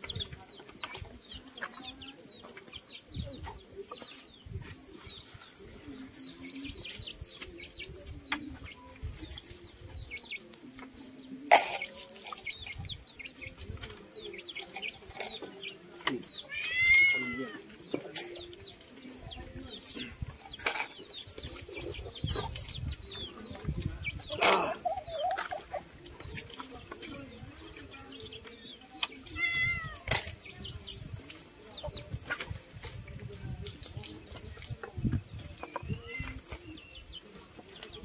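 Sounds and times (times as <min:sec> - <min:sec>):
chicken squawking and clucking: 0:16.4 - 0:17.7.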